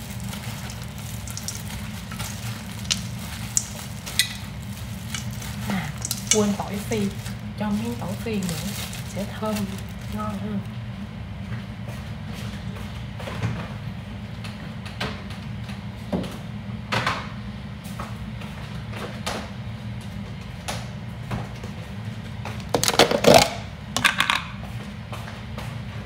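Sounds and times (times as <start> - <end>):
rattling and rustling handling: 0.0 - 10.6
steady low hum: 0.0 - 26.0.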